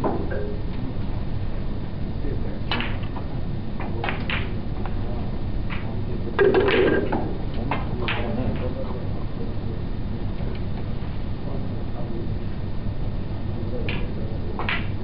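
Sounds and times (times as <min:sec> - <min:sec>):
room noise: 0:00.0 - 0:15.0
snooker balls clicking: 0:06.4 - 0:08.7, 0:13.9 - 0:14.9.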